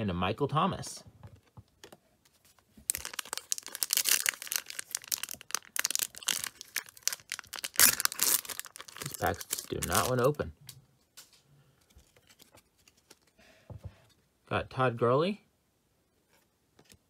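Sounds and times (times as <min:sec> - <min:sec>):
foil wrapper crinkling and tearing: 0:02.8 - 0:10.4.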